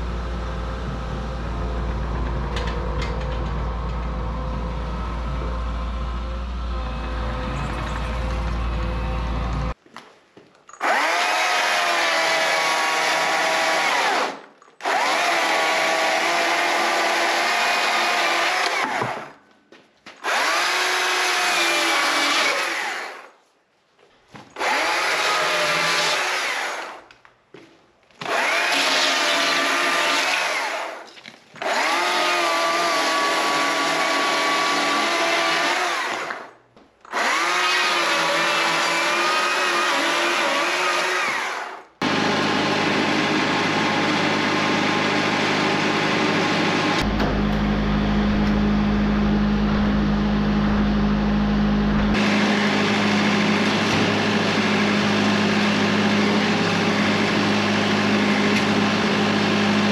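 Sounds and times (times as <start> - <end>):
battery chainsaw cutting wood: 10.8 - 19.3, 20.2 - 23.3, 24.6 - 27.1, 28.2 - 47.1, 52.2 - 59.9
steady machine hum: 42.0 - 59.9.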